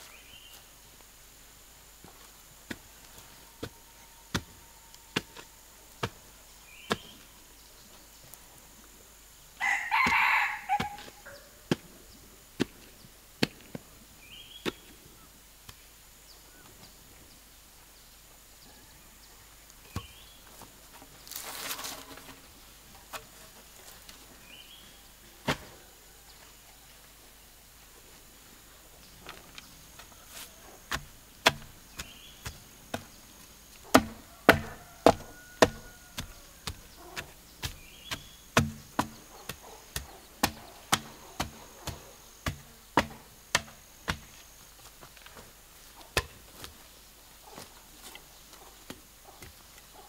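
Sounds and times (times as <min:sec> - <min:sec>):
rooster crowing: 0:09.6 - 0:11.6, 0:34.1 - 0:37.2
sharp irregular knocks: 0:30.9 - 0:33.1, 0:33.9 - 0:44.4.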